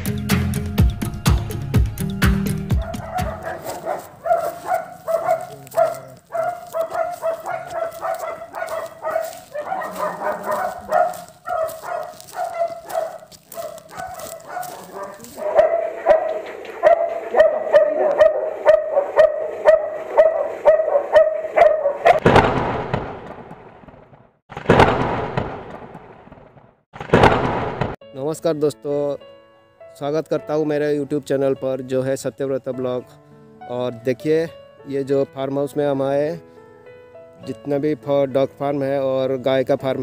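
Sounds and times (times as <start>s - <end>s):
dog barking: 2.7s - 22.2s.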